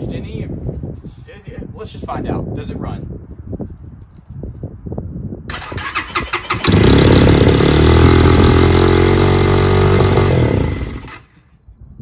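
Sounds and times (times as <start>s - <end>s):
dirt bike engine starting and idling: 5.5s - 11.4s.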